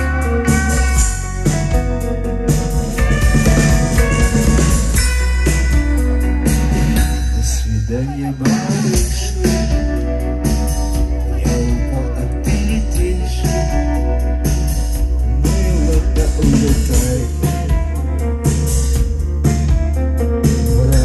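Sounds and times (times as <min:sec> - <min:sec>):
rock band playing live: 0:00.0 - 0:21.0.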